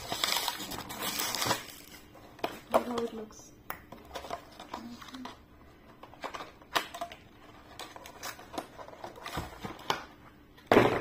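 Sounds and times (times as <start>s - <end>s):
plastic packaging crinkling: 0.0s - 3.2s.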